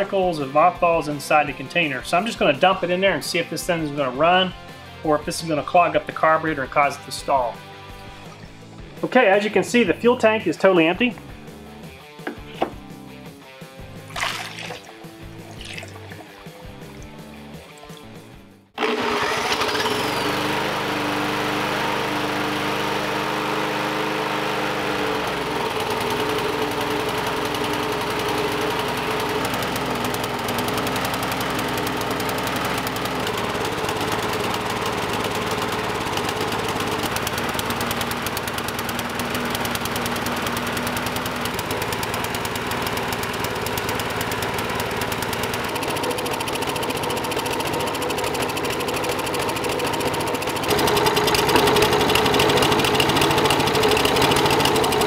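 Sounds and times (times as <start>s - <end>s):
small engine running: 0.0s - 12.4s, 13.8s - 55.0s
cordless drill whine: 18.8s - 20.3s.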